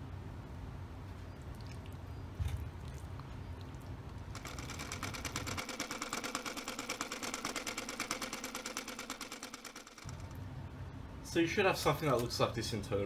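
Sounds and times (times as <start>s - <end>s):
fast mechanical rattle: 4.3s - 10.4s.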